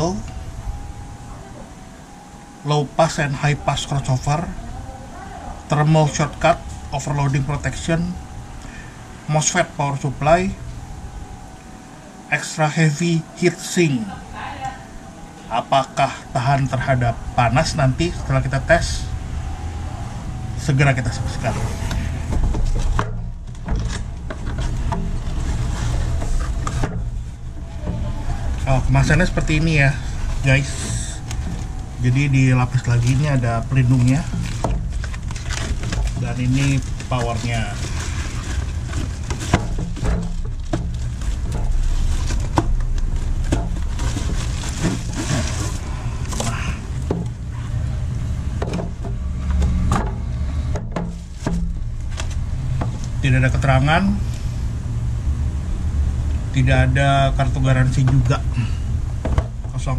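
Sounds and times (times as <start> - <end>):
steady low rumble: 0.0 - 59.9
cardboard box scraping and rustling: 23.8 - 26.9, 27.6 - 47.0.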